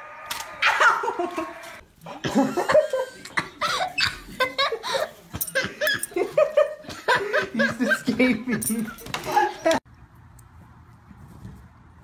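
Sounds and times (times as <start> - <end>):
people laughing and giggling: 0.7 - 9.8.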